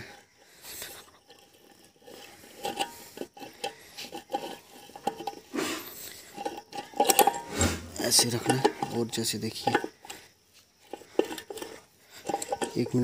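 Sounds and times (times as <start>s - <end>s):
metal scraping and clinking: 0.0s - 13.0s
metal clattering: 1.2s - 5.5s, 6.3s - 10.2s, 10.9s - 13.0s.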